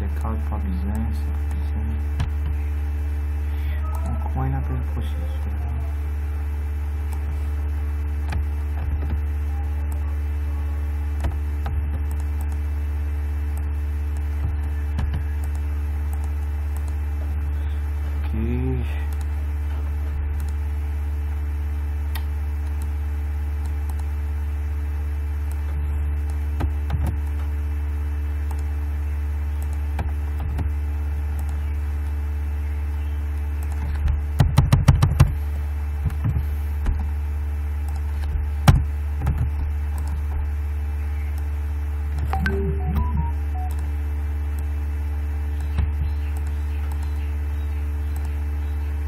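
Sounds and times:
low electrical hum: 0:00.0 - 0:49.0
computer keys typing: 0:13.5 - 0:17.0, 0:42.2 - 0:43.9.

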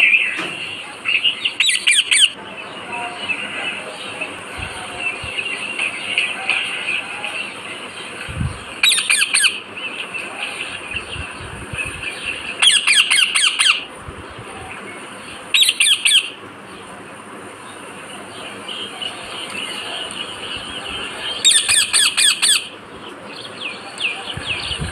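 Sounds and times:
parakeet shrill squawks: 0:08.8 - 0:09.6, 0:12.6 - 0:13.9, 0:15.6 - 0:16.3, 0:21.4 - 0:22.7.

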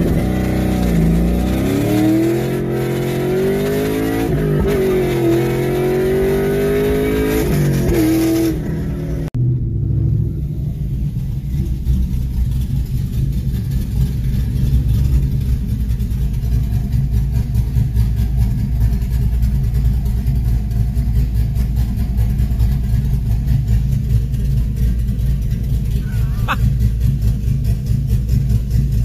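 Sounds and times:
car engine idling with pulsing beat: 0:09.4 - 0:29.0.

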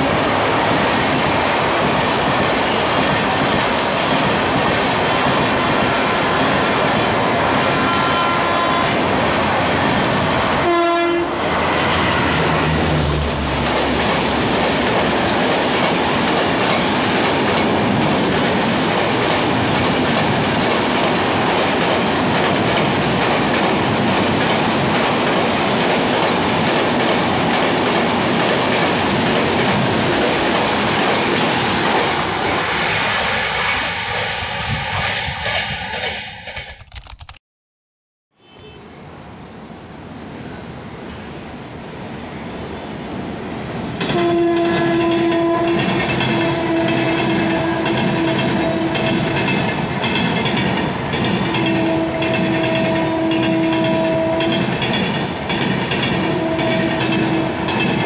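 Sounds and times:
train wheels rushing and rattling: 0:00.0 - 0:37.3, 0:43.7 - 0:58.0
train horn blast: 0:07.3 - 0:09.1, 0:10.6 - 0:14.0, 0:44.1 - 0:49.3, 0:51.5 - 0:54.7, 0:56.2 - 0:57.8.

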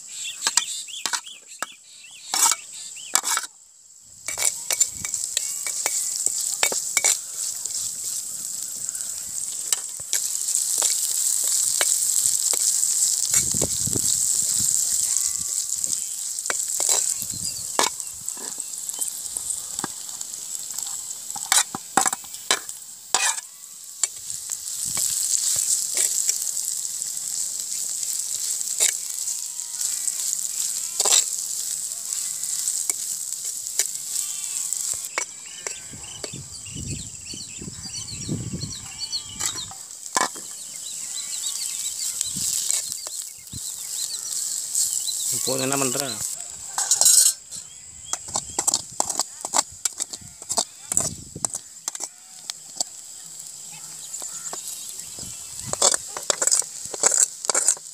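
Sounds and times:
onions sizzling in hot oil: 0:00.0 - 0:57.9
metal spoon scraping pot: 0:00.4 - 0:03.5, 0:04.3 - 0:20.0, 0:20.7 - 0:24.3, 0:30.1 - 0:31.8, 0:45.4 - 0:47.6, 0:55.7 - 0:57.9.

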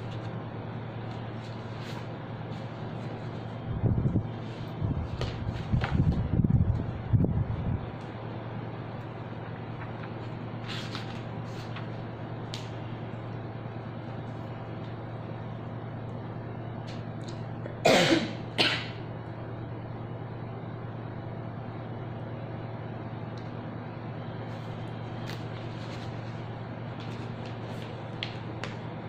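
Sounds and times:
steady low hum: 0:00.0 - 0:29.0
person coughing: 0:17.7 - 0:19.0.

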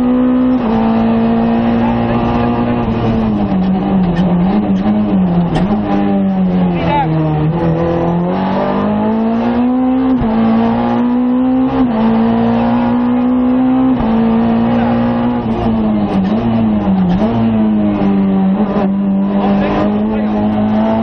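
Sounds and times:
rally car engine at hard throttle: 0:00.0 - 0:21.0.

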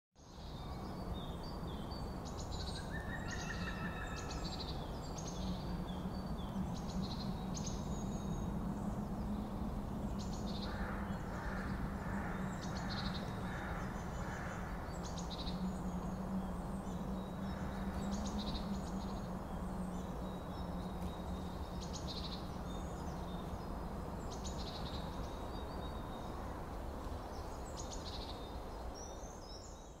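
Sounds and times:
low hum: 0:04.4 - 0:26.8.

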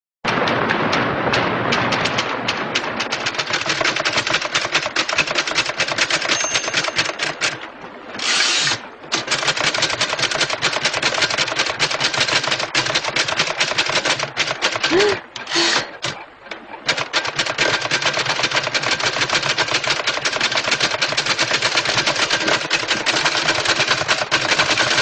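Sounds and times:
typewriter keys clattering: 0:03.0 - 0:07.6, 0:08.2 - 0:16.2, 0:16.9 - 0:25.0
short hissing burst: 0:14.9 - 0:16.0.

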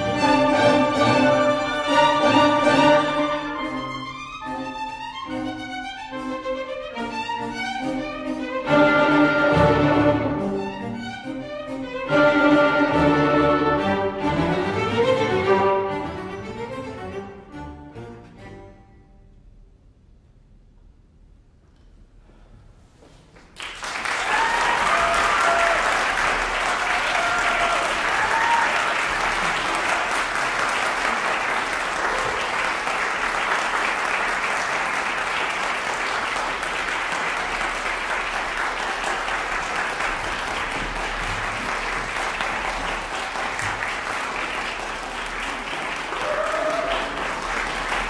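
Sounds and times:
audience applauding: 0:00.0 - 0:04.0, 0:23.4 - 0:48.0.

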